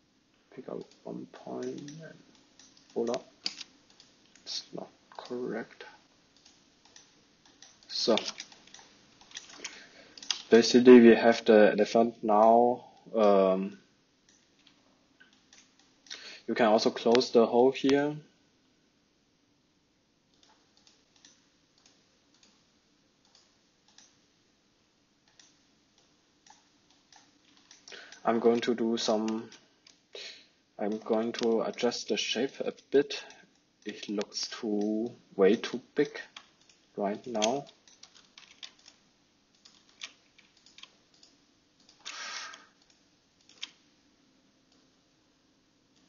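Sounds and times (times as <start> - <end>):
faint mouse clicks: 23.2 - 24.2, 25.2 - 28.7
mouse and keyboard clicks: 39.6 - 43.8.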